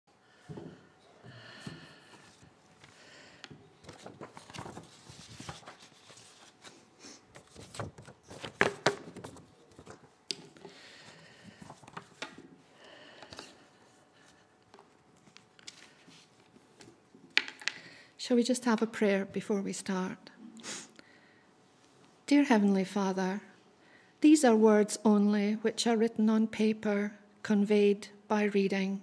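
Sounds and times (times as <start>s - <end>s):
paper rustling: 2.1s - 10.7s, 11.4s - 12.5s, 14.2s - 17.0s.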